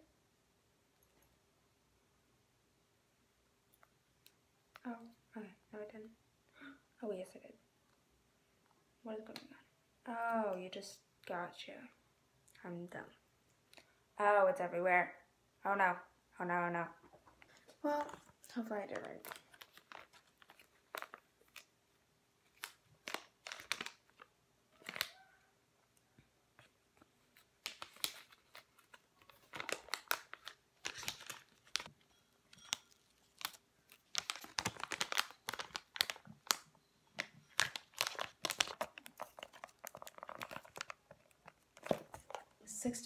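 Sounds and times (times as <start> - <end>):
plastic packaging crinkling: 17.4 - 21.7, 22.4 - 25.2, 26.6 - 42.6.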